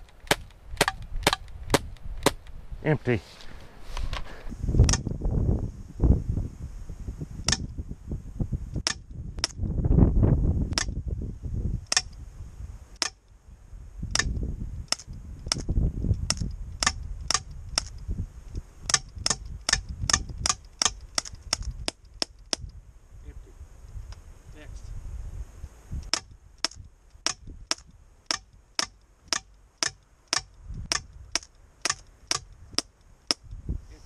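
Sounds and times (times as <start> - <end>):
bb gun shots cracking: 0.0 - 2.5.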